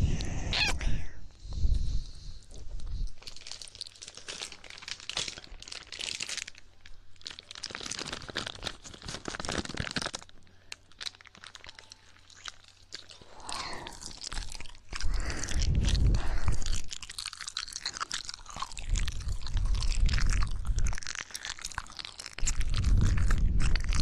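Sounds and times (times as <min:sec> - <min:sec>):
wet mouth clicks and crackles: 0:11.0 - 0:24.0.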